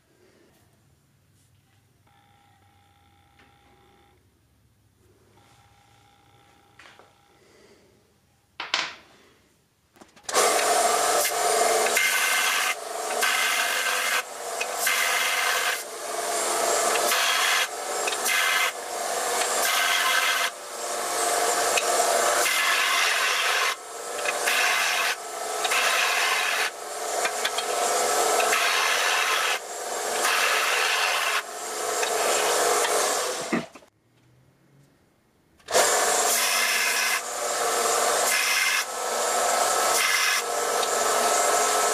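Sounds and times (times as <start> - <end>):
belt sander grinding metal: 10.3 - 33.8, 35.7 - 41.9
motor winding down whine: 10.3 - 33.8, 35.7 - 41.9.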